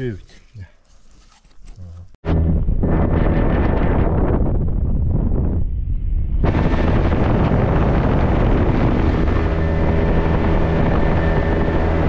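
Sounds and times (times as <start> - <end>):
wind buffeting microphone: 2.3 - 12.0
motorboat engine running: 6.4 - 12.0.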